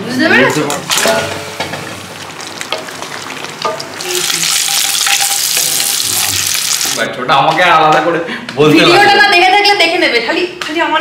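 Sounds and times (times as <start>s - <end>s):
food sizzling in hot oil: 0.6s - 7.0s.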